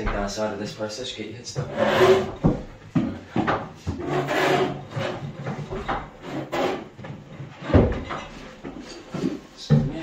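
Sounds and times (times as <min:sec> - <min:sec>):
wooden furniture scraping on floor: 0:01.6 - 0:02.7, 0:03.3 - 0:10.0.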